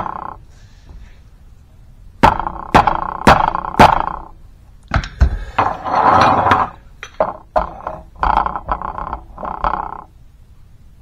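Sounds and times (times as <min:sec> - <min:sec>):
metal tool scraping on steel: 0:05.6 - 0:06.8.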